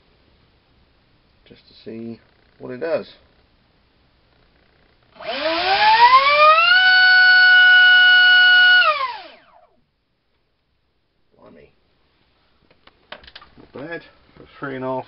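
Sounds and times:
high-pitched motor whine: 0:05.2 - 0:09.7.

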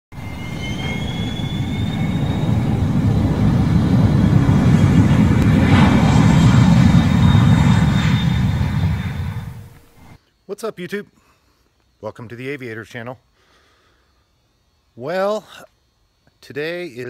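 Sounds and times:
airplane engine drone: 0:00.1 - 0:10.2
thin rising whine: 0:00.1 - 0:10.2.

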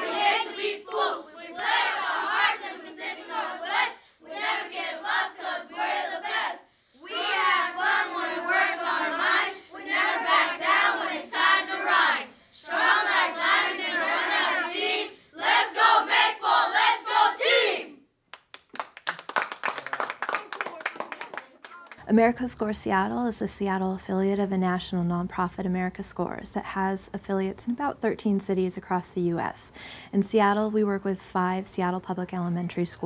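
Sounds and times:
boys chanting in unison: 0:00.0 - 0:18.0
rapid clapping: 0:18.3 - 0:22.0.

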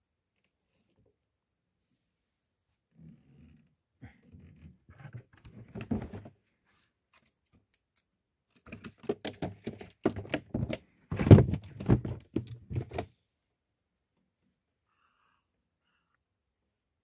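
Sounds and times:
fish thumping in plastic ice chest: 0:08.9 - 0:13.1.

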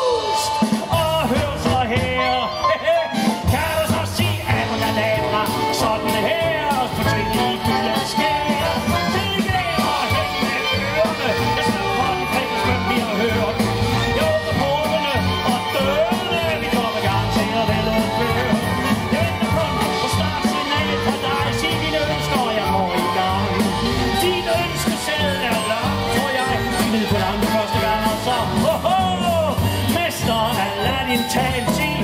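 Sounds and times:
big band playing: 0:00.0 - 0:32.0
drum kit: 0:00.0 - 0:32.0
strings: 0:00.0 - 0:32.0.

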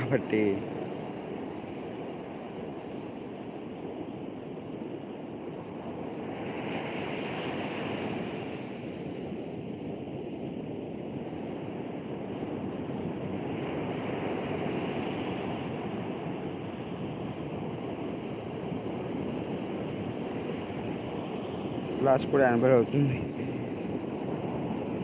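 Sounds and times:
waves rushing on beach: 0:00.0 - 0:04.1, 0:04.7 - 0:25.0
wind buffeting microphone: 0:00.0 - 0:25.0.

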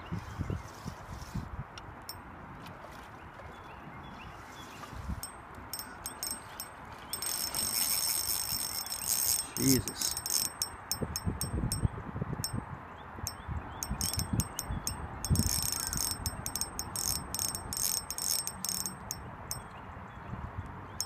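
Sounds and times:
fishing reel clicking and whirring: 0:05.2 - 0:12.6, 0:13.3 - 0:19.7.

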